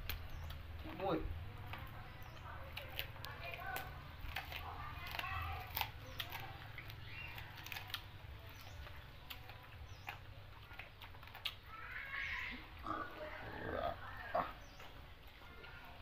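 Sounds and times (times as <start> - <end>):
eating from metal tray: 0.0 - 16.0
animal calls: 2.0 - 15.9
mouth smacks from chewing: 2.3 - 11.7.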